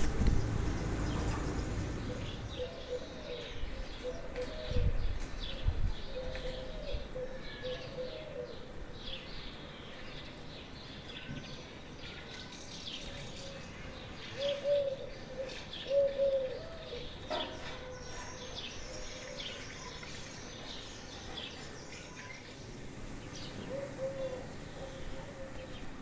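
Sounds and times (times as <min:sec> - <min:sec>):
small birds chirping: 0:00.0 - 0:26.0
dove cooing: 0:01.2 - 0:08.8, 0:14.4 - 0:18.3, 0:23.4 - 0:26.0.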